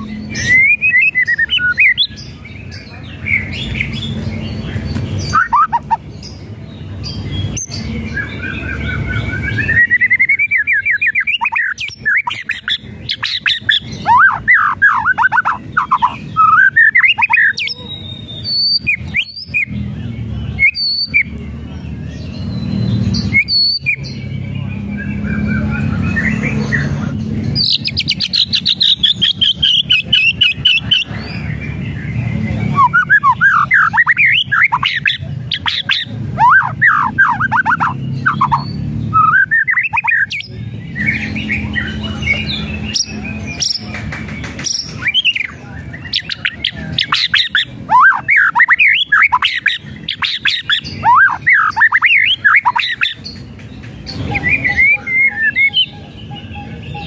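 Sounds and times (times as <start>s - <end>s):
rapid down-slurred bird whistles: 0.0s - 2.2s, 5.2s - 6.0s, 8.4s - 19.7s, 20.5s - 21.3s, 22.4s - 24.2s, 32.5s - 43.8s, 44.6s - 53.3s.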